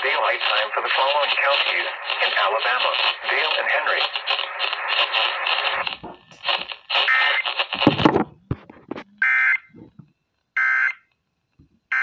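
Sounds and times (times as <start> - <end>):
broadcast audio: 0.0 - 9.1.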